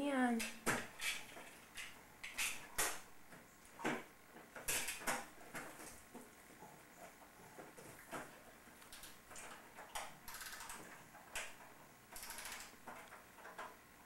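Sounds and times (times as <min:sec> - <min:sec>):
wind-up toy ratcheting: 0:10.3 - 0:10.8, 0:12.2 - 0:12.7.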